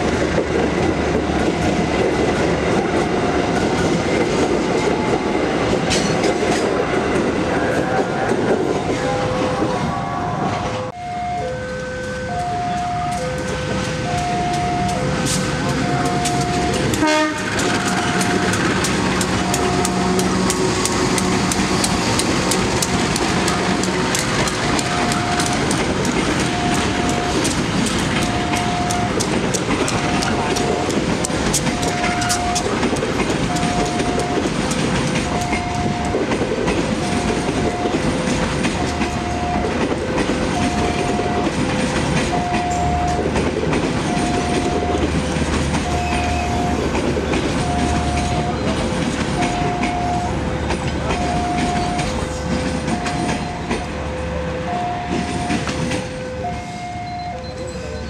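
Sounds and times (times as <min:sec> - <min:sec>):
train wheels clicking over rail joints: 0:00.0 - 0:07.5, 0:11.6 - 0:58.0
two-note electronic warning tone: 0:11.0 - 0:18.6, 0:19.4 - 0:20.3, 0:26.5 - 0:27.5, 0:28.2 - 0:29.2, 0:33.5 - 0:34.5, 0:44.1 - 0:45.1, 0:47.6 - 0:48.8, 0:49.4 - 0:50.4, 0:51.2 - 0:58.0.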